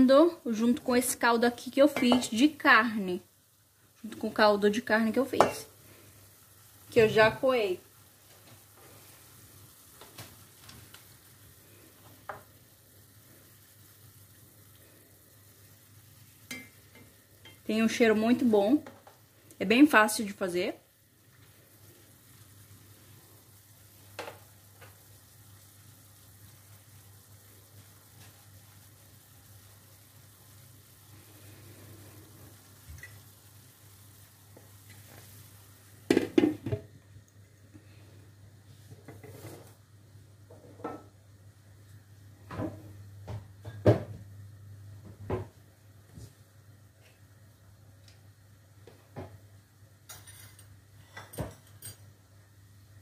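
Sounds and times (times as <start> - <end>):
meat sizzling in a pot: 0.0 - 53.0
kitchen knocks and clunks: 36.1 - 36.9, 40.5 - 41.1, 42.4 - 44.3, 45.0 - 45.6, 48.9 - 49.4, 51.2 - 51.8.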